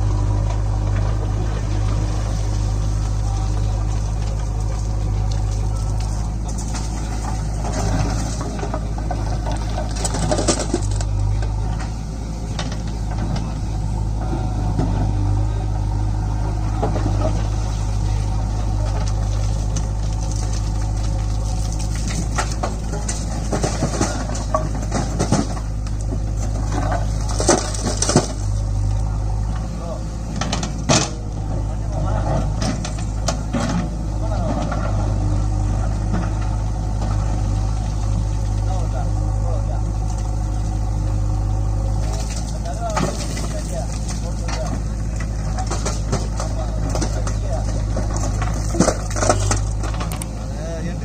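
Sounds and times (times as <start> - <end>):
diesel engines idling: 0.0 - 51.0
stones clattering into trolley: 3.7 - 11.2, 18.7 - 28.6, 32.0 - 35.1, 42.0 - 50.4.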